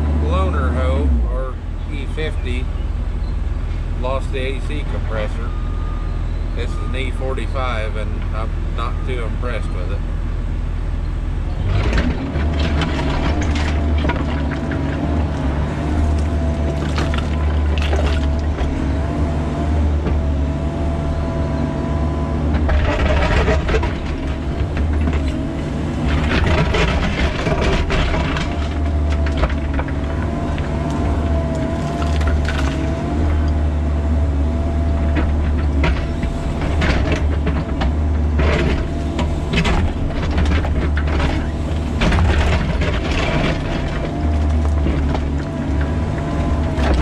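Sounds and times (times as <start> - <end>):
excavator diesel engine under load: 0.0 - 47.0
bucket scraping rocky ground: 11.7 - 18.9, 22.6 - 33.2, 35.2 - 47.0.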